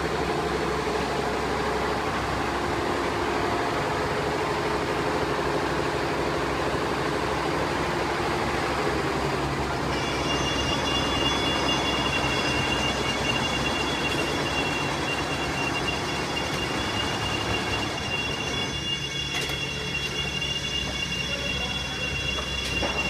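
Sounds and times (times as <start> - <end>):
high-pitched whine: 1.8 - 23.0
embroidery machine clatter: 10.0 - 23.0.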